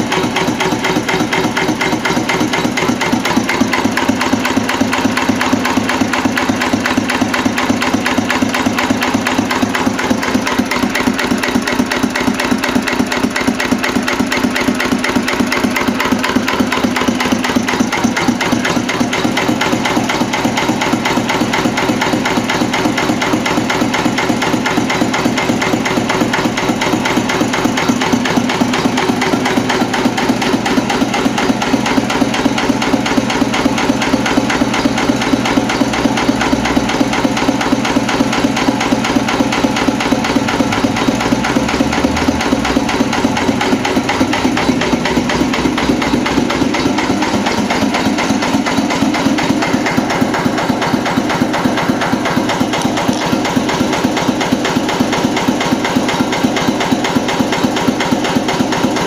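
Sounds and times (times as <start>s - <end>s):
diesel engine knocking clatter: 0.0s - 59.0s.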